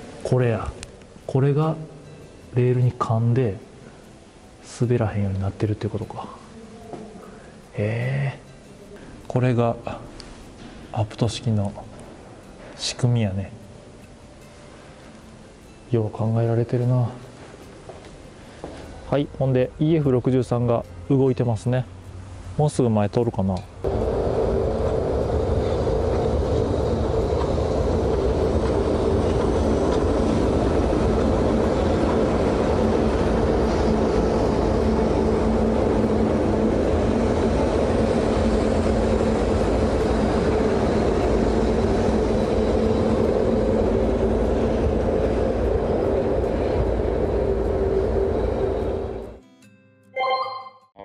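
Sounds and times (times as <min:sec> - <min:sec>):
electric locomotive hum: 0:23.5 - 0:49.4
wheels rumbling on rails: 0:23.8 - 0:49.4.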